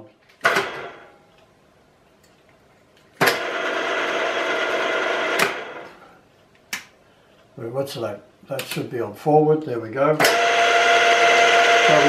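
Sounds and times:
drill press gear whine: 0:10.2 - 0:12.0.

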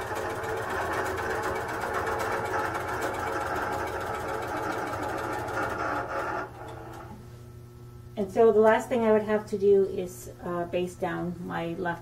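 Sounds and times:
quilting machine stitching: 0:00.0 - 0:07.1.

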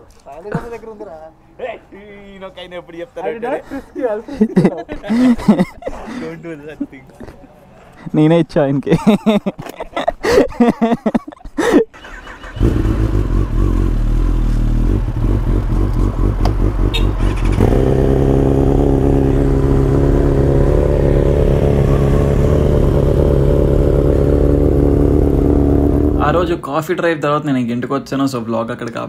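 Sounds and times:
motorcycle engine starting and idling: 0:11.9 - 0:26.5.

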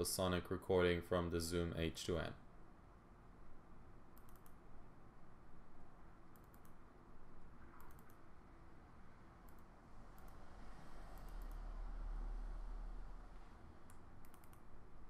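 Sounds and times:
low room noise: 0:00.0 - 0:15.0
computer mouse double-clicks: 0:04.2 - 0:04.6, 0:06.3 - 0:06.8, 0:07.7 - 0:08.2, 0:09.5 - 0:10.4, 0:11.1 - 0:11.6, 0:13.9 - 0:14.7.

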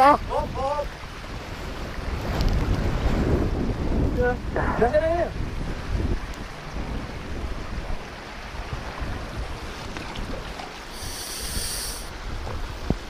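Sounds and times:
river rushing: 0:00.0 - 0:13.0
wading splashes: 0:00.0 - 0:13.0
wind buffeting microphone: 0:00.0 - 0:13.0
brief high hiss: 0:10.9 - 0:12.1.

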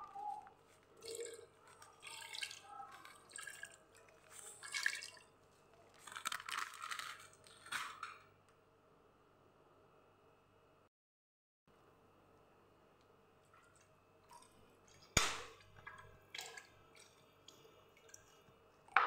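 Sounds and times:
water pouring into metal pot: 0:01.0 - 0:05.3, 0:14.3 - 0:18.4.

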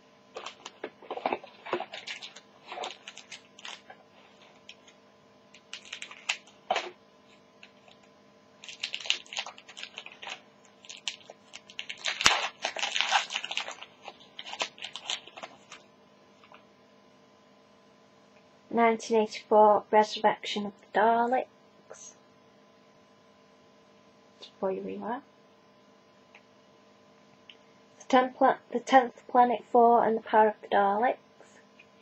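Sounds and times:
foil wrapper crinkling and tearing: 0:00.3 - 0:16.6.

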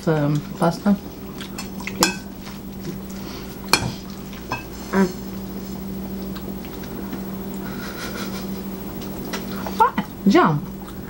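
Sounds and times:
steady low hum: 0:00.0 - 0:11.0
cutlery clinking on plates: 0:01.6 - 0:02.3.

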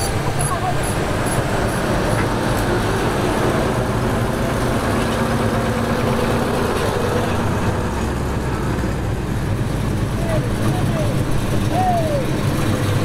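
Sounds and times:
cars driving past: 0:00.0 - 0:13.0
engine hum: 0:00.0 - 0:13.0.

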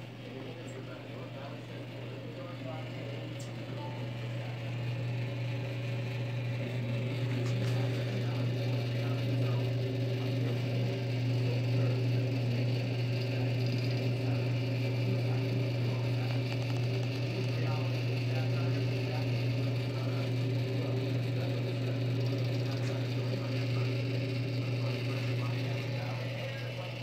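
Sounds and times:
oven low electrical hum: 0:00.0 - 0:27.0.

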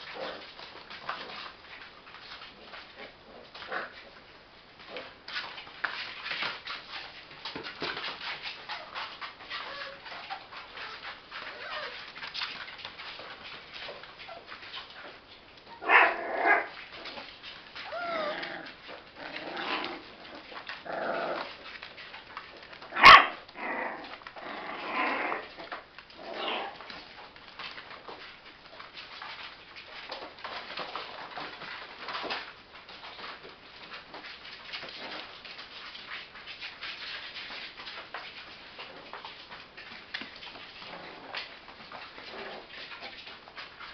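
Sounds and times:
paws scrabbling on plastic: 0:00.0 - 0:43.9
puppies whining and yelping: 0:17.8 - 0:21.5.

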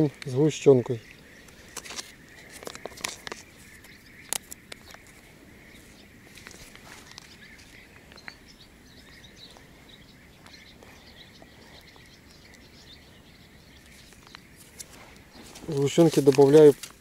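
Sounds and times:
bird chirps: 0:00.0 - 0:17.0
high insect hum: 0:00.0 - 0:17.0
small ticks: 0:01.0 - 0:09.7, 0:10.4 - 0:13.0.

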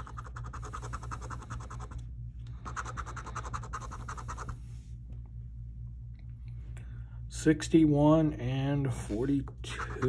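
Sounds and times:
scratching lottery ticket: 0:00.0 - 0:02.0, 0:02.6 - 0:04.6, 0:09.6 - 0:10.0.

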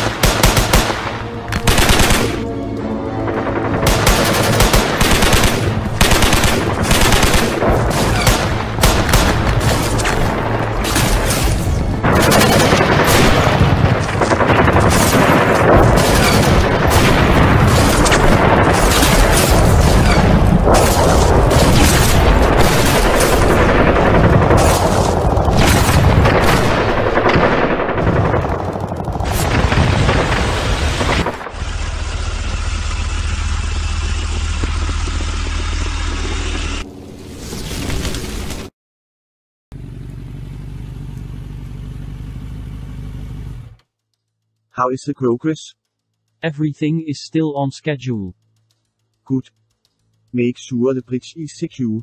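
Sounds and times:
rifle and machine-gun fire: 0:00.0 - 0:02.4, 0:03.8 - 0:31.6
tank engine running: 0:00.0 - 0:37.3, 0:39.7 - 0:43.9
explosions: 0:03.8 - 0:31.5.

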